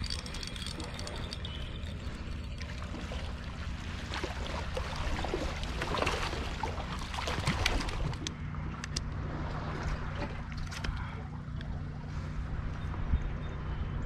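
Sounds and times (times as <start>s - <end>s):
fish splashing at water surface: 0.0s - 8.2s
steady low rumble: 0.0s - 14.0s.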